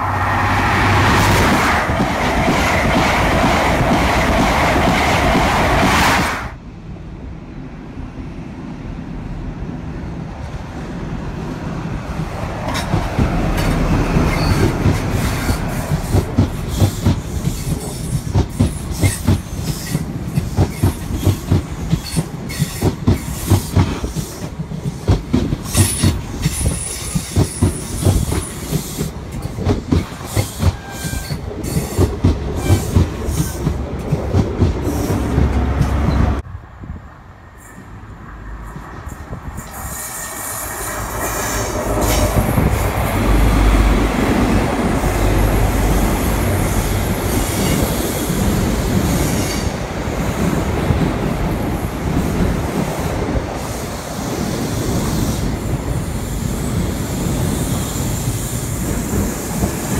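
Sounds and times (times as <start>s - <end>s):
low steady train rumble: 0.0s - 59.9s
train wheels clicking over rail joints: 12.3s - 36.4s.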